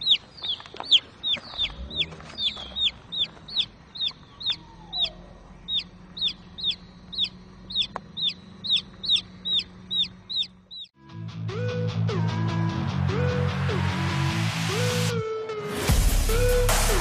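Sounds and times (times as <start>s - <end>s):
chick peeping rapidly: 0.0s - 10.9s.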